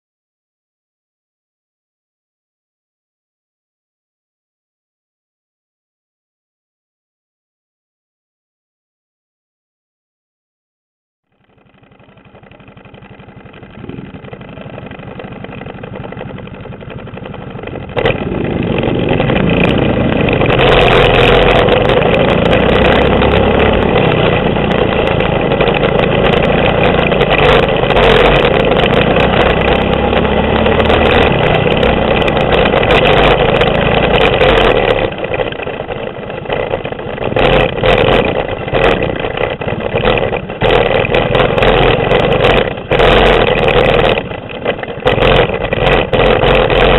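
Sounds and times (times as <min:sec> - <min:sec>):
small engine running under throttle: 0:11.3 - 0:46.9.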